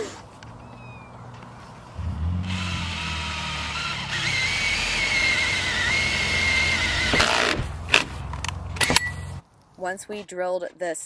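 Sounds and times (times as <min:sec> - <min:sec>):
cordless drill boring sheet metal: 0:02.5 - 0:07.6.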